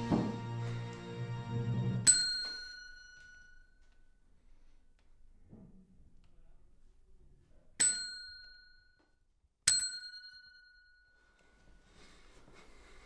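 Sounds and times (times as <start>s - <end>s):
desk service bell ding: 2.0s - 3.7s, 7.8s - 9.0s, 9.7s - 11.2s.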